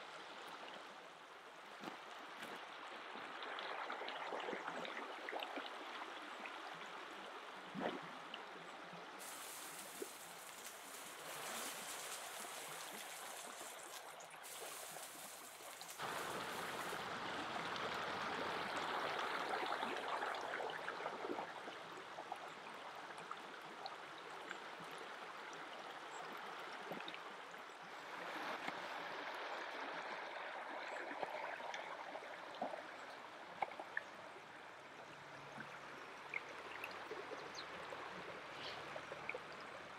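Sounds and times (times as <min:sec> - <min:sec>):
river rushing over stones: 0:09.2 - 0:17.4.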